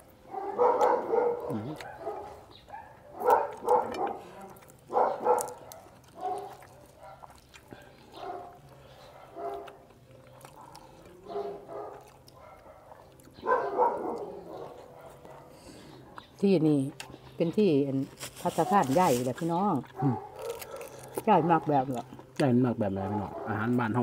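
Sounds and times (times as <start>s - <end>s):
dog barking: 0.2s - 7.4s, 8.1s - 16.2s, 19.9s - 21.7s, 23.2s - 23.8s.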